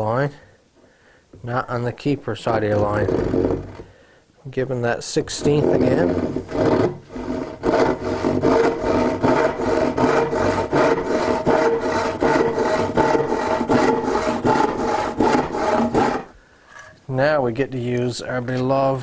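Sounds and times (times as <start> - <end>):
hand saw cutting wood: 2.5 - 3.8, 5.2 - 16.4.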